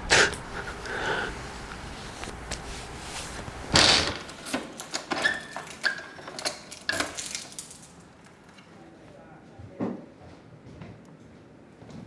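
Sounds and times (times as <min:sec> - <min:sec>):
keys jingling in door lock: 0:04.4 - 0:08.0.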